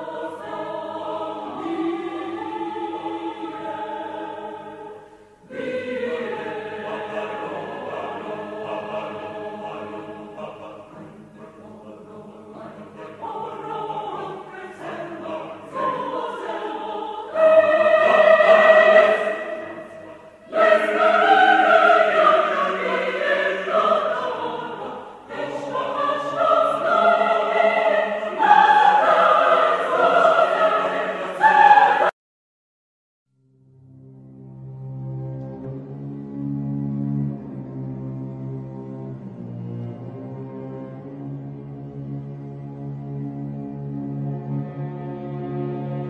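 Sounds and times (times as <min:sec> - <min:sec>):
choir singing sustained phrases: 0:00.0 - 0:32.2.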